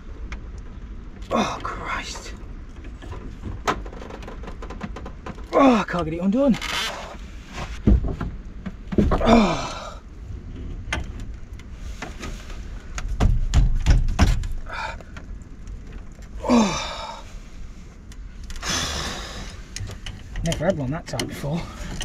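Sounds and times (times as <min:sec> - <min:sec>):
heavy thumps: 0:07.5 - 0:09.9.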